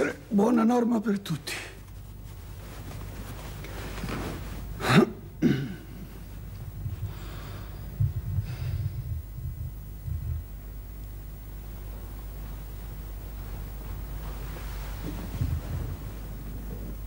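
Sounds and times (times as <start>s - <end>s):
man clearing throat: 4.8s - 6.1s
man coughing: 4.8s - 6.1s.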